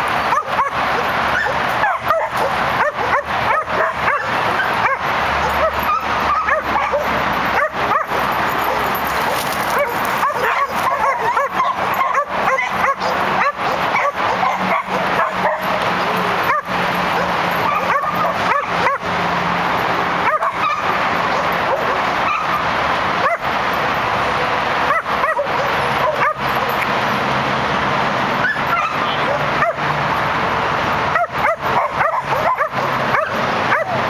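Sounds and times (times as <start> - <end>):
dogs barking and yipping: 0.0 - 27.5, 28.2 - 34.0
high dog yelps: 0.3 - 15.7, 16.4 - 19.0, 20.2 - 22.6, 23.2 - 23.5, 24.9 - 26.5, 28.4 - 29.8, 31.1 - 34.0.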